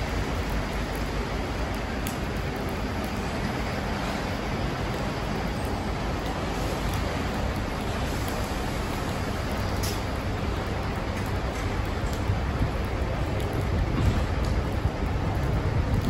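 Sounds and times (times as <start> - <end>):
continuous hiss: 0.0 - 16.0.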